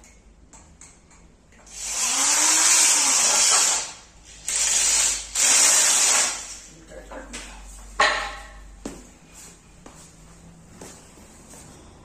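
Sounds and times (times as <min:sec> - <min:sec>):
electric drill whining: 0:01.7 - 0:06.6.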